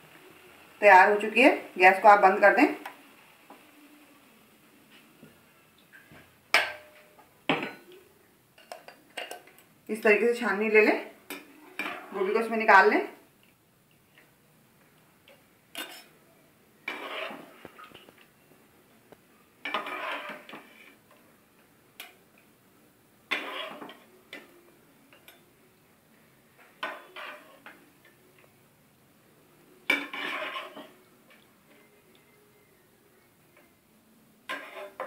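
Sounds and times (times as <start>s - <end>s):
spatula clattering in wok: 29.9s - 30.9s.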